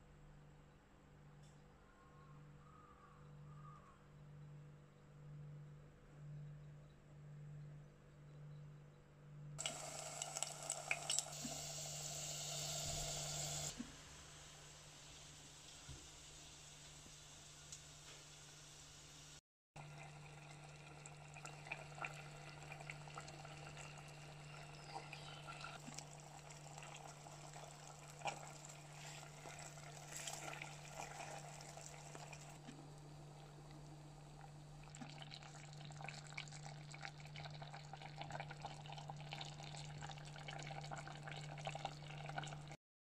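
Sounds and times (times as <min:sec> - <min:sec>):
stew bubbling and popping: 0:09.6 - 0:11.9, 0:19.8 - 0:42.8.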